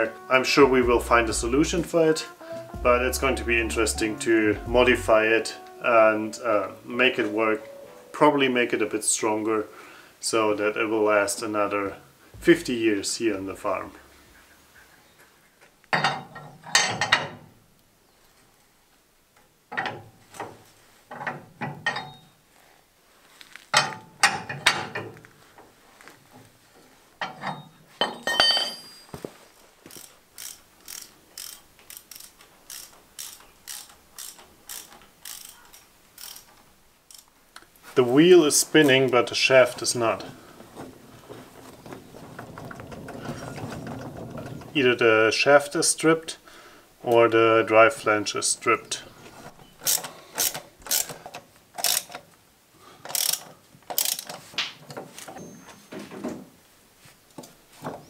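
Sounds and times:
metal clanks: 0:15.9 - 0:17.5, 0:19.7 - 0:22.4, 0:23.7 - 0:25.2, 0:27.2 - 0:29.1, 0:40.7 - 0:45.0
jack ratcheting: 0:29.9 - 0:37.3, 0:49.8 - 0:52.2, 0:53.0 - 0:54.5
wheel hub metallic clicks: 0:29.9 - 0:37.6, 0:49.7 - 0:52.3, 0:53.0 - 0:54.5.

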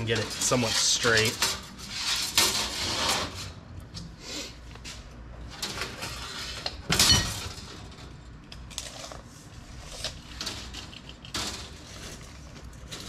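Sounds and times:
metal line scraping on workbench: 0:00.0 - 0:03.6.

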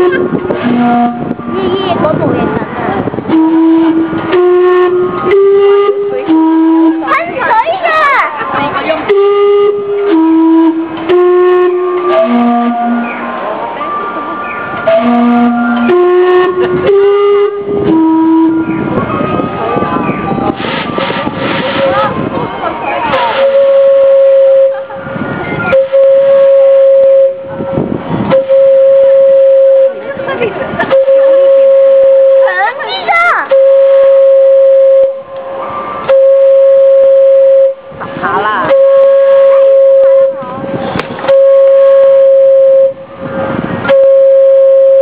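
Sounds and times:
steam whistle blasts: 0:00.0 - 0:01.4, 0:03.3 - 0:07.1, 0:09.1 - 0:13.3, 0:14.8 - 0:18.9, 0:23.1 - 0:24.9, 0:25.7 - 0:27.5, 0:28.3 - 0:30.0, 0:33.5 - 0:35.3, 0:38.7 - 0:40.4.

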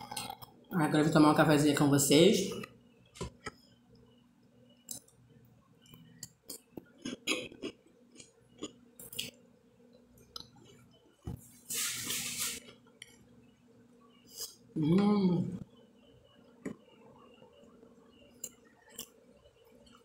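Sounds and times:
rustling hiss: 0:11.6 - 0:12.7.

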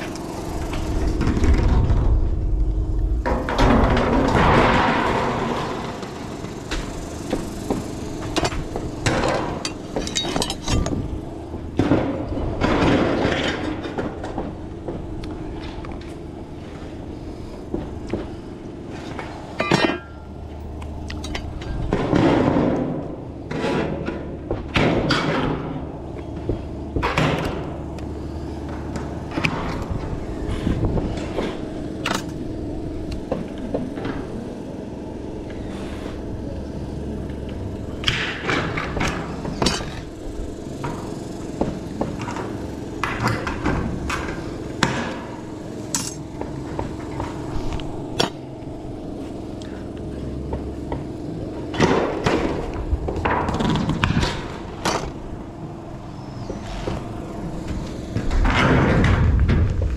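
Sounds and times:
tin snips cutting metal: 0:45.9 - 0:46.2.

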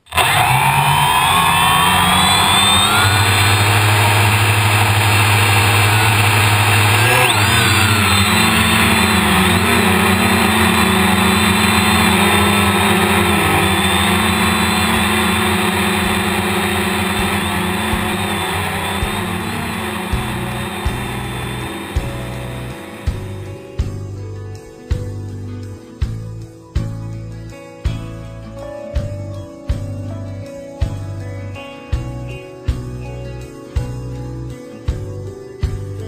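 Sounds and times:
drone motors and propellers: 0:00.0 - 0:23.5.

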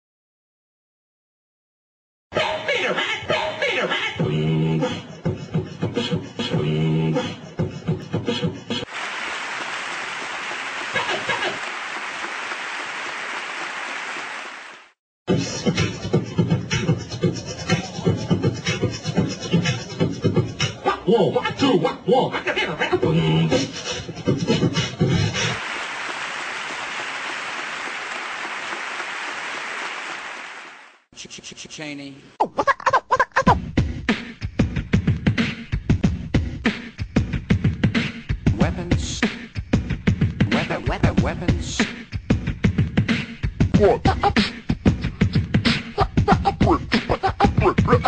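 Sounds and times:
beatbox vocal percussion: 0:02.5 - 0:08.9, 0:15.3 - 0:25.6, 0:31.2 - 0:48.0
audience applause: 0:08.9 - 0:15.0, 0:25.4 - 0:31.0.

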